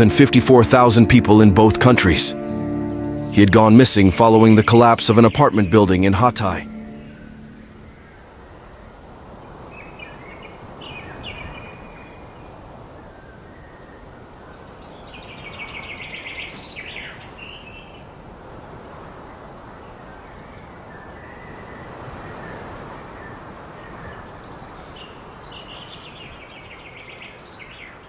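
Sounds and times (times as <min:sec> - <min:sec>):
birds chirping: 0:00.0 - 0:08.5
steady outdoor hiss: 0:00.0 - 0:28.0.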